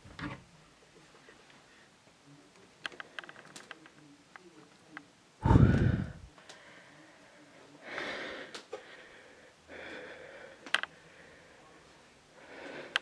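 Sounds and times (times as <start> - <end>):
heavy frightened breaths: 5.4 - 13.0.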